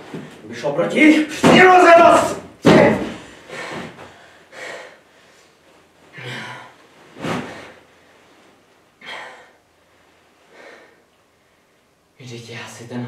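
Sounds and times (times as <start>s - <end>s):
man gasping breaths: 3.2s - 5.6s, 9.0s - 9.6s, 10.5s - 11.1s.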